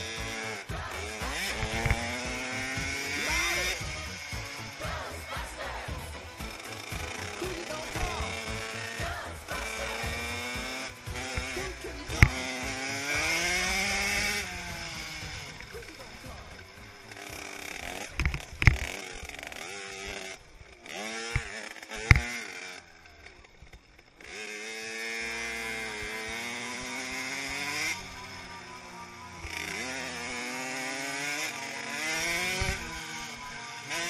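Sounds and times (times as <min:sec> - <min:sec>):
motocross bike engine revving: 0:00.0 - 0:34.0
sharp knocks of bike on bumps: 0:01.2 - 0:04.6, 0:21.1 - 0:22.4.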